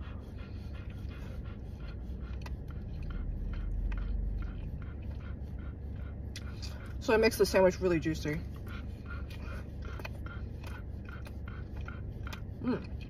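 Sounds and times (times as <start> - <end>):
low rumble: 0.0 - 13.0
person chewing: 9.2 - 13.0.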